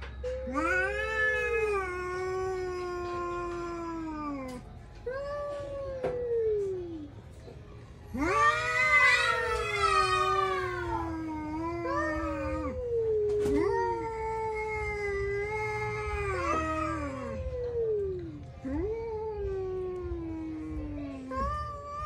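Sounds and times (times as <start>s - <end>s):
cat caterwauling: 0.4s - 7.1s, 8.1s - 22.0s.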